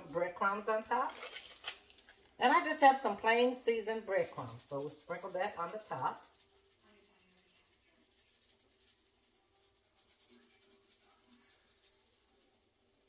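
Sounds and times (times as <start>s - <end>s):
breadcrumbs rustling from canister: 4.1s - 13.0s.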